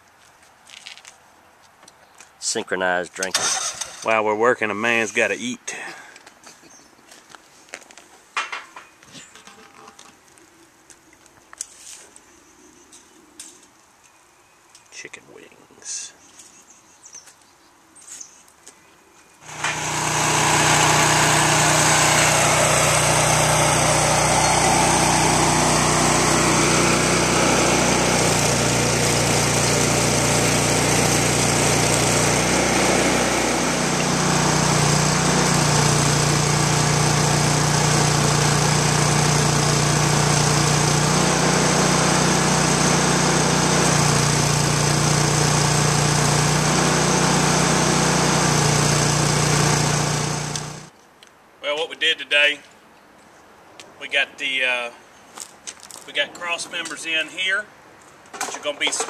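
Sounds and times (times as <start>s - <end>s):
angle grinder on steel: 3.3s - 4.2s, 19.4s - 50.9s.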